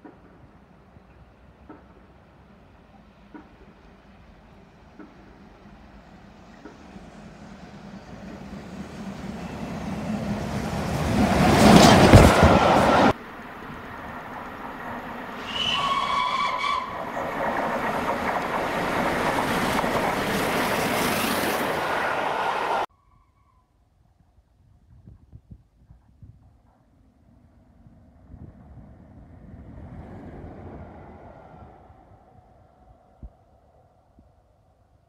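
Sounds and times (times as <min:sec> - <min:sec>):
steam train running: 0:00.0 - 0:22.9
steam locomotive whistle: 0:15.3 - 0:17.3, 0:21.1 - 0:22.9.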